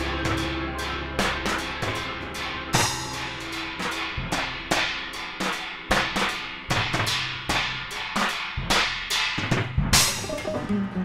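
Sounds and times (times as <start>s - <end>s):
low bass notes: 0.0s - 4.4s, 9.9s - 11.0s
drum kit and cymbal hits: 0.0s - 10.9s.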